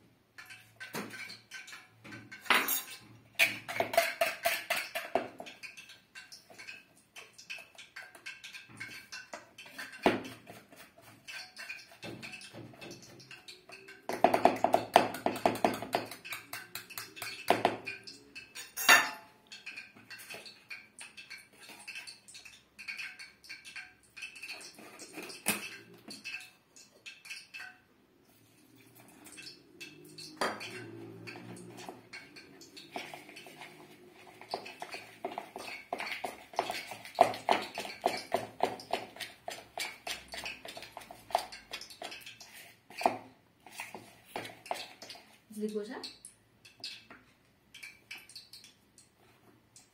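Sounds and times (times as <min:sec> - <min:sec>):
utensil clinking on plate: 0:00.4 - 0:27.8, 0:29.2 - 0:45.2.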